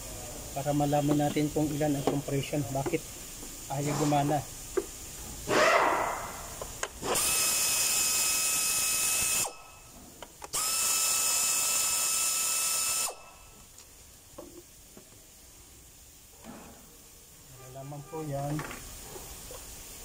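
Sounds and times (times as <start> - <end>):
air blow gun hissing: 0.0 - 13.7.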